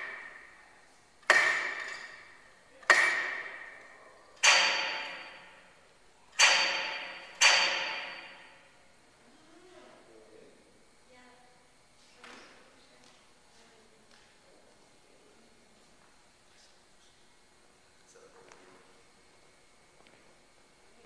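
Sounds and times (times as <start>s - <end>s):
hammers striking metal structure: 0.0s - 8.8s.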